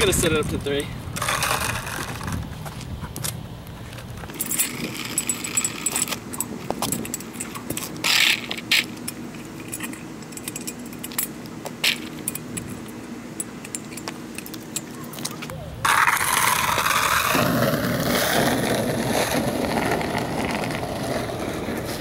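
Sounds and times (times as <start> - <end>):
metal parts clinking and jangling: 4.3 - 15.5.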